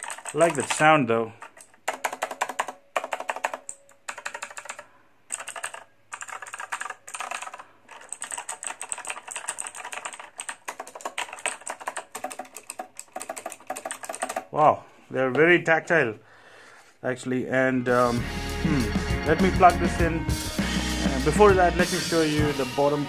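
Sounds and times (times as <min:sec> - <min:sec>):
mechanical keyboard typing: 0:00.0 - 0:14.5.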